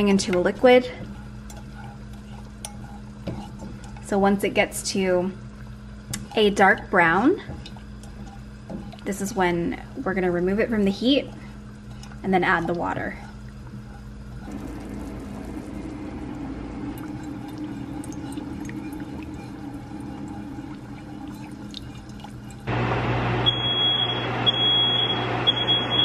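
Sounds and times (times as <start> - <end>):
melting sugar crackling: 5.0 - 26.0
low hum: 8.9 - 26.0
smoke alarm beeping: 23.3 - 26.0.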